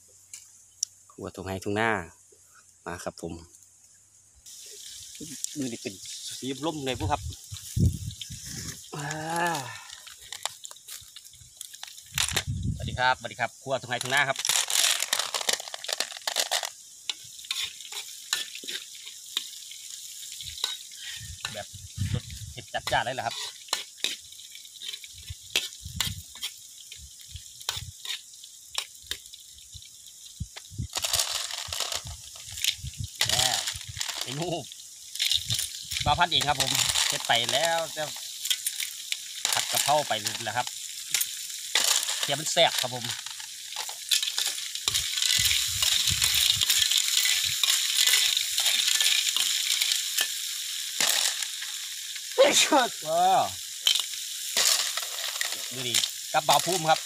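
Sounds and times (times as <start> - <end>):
oil sizzling in a wok: 0.0 - 57.0
metal ladle scraping a wok: 17.4 - 19.5, 23.3 - 26.6.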